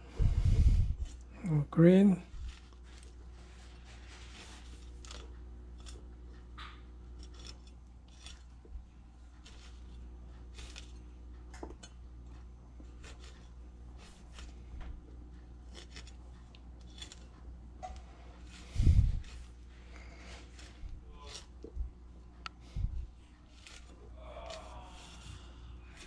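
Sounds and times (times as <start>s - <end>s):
cleaver slicing and scraping pineapple: 2.3s - 8.7s, 9.4s - 11.0s, 12.9s - 14.7s, 15.6s - 21.8s, 22.7s - 26.0s.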